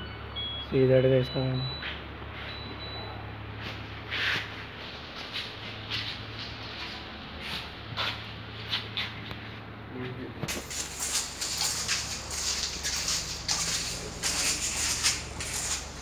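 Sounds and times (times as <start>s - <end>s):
steady low hum: 1.6s - 16.0s
footsteps scuffing on gritty concrete: 3.6s - 16.0s.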